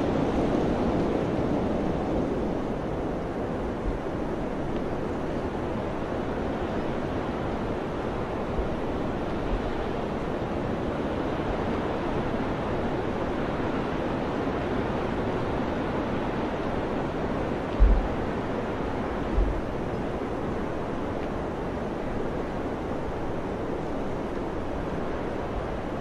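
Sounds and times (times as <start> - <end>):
mountain wind blowing: 0.0 - 26.0
wind thumps on microphone: 17.7 - 18.5, 19.2 - 19.9.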